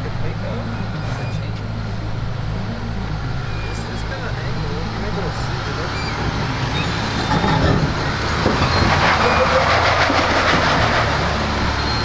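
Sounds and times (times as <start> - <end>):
car engine crawling on rocks: 5.4 - 11.5.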